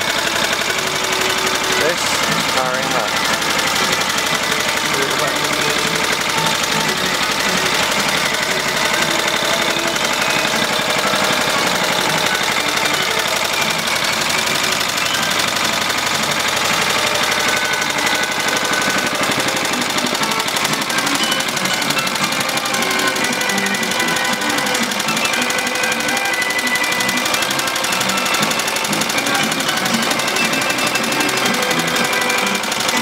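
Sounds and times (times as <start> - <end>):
small engine running steadily: 0.0 - 33.0.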